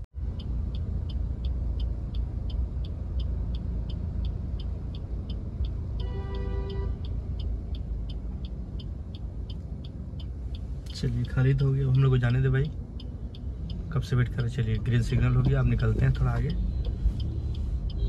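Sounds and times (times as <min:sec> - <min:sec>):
surrounding traffic: 0:00.0 - 0:18.0
turn signal ticking: 0:00.0 - 0:18.0
vehicle horn: 0:06.0 - 0:07.0.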